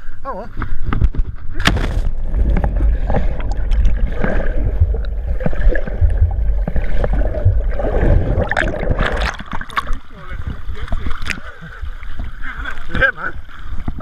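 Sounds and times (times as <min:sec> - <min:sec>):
muffled underwater rumble: 0:00.7 - 0:14.0
water splashing: 0:01.5 - 0:14.0
rush of bubbles: 0:02.0 - 0:11.4.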